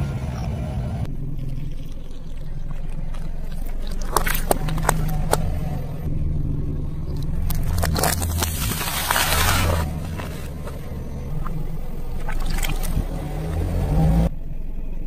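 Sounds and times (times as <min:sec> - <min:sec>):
car engine running low: 0:00.0 - 0:15.0
tyre crushing plastic cracks: 0:07.3 - 0:10.8.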